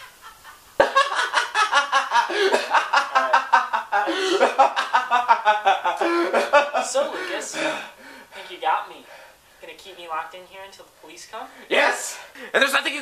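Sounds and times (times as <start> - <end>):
man laughing loudly: 0.0 - 7.3.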